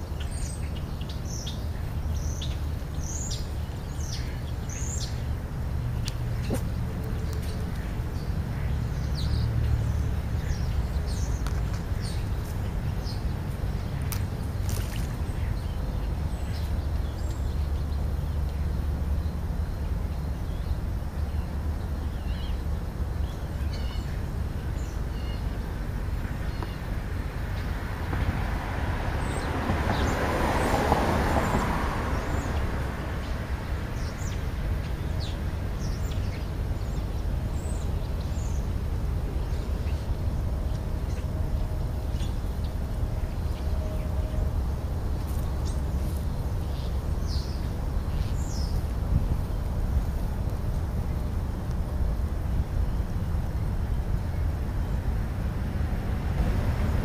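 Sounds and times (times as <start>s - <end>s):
car passing: 0.0s - 57.0s
steady low rumble: 32.1s - 57.0s.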